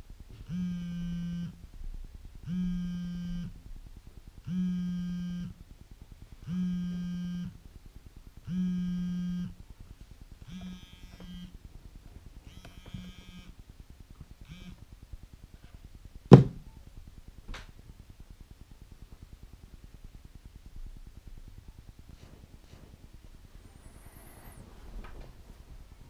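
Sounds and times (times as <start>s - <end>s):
smartphone alarm buzzy tone: 0.5s - 1.6s, 2.4s - 3.5s, 4.5s - 5.6s, 6.4s - 7.6s, 8.5s - 9.6s, 10.4s - 11.5s, 12.5s - 13.6s, 14.5s - 14.8s, 23.8s - 24.6s.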